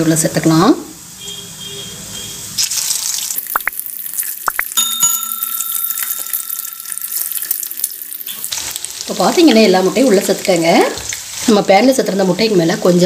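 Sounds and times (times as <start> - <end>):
egg slices sizzling in hot oil: 2.6 - 12.4
bell-like ringing tone: 4.8 - 8.0.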